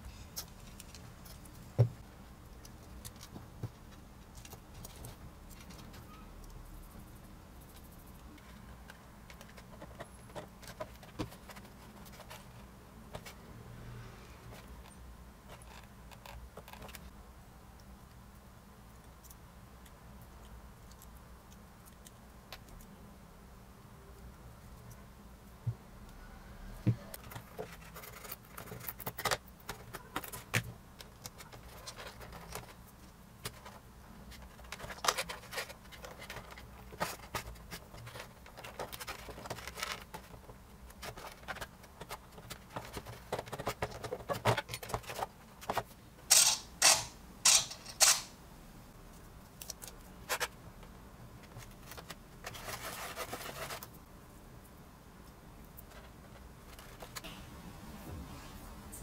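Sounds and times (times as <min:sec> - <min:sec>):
soft hiss: 0:53.5 - 0:59.0.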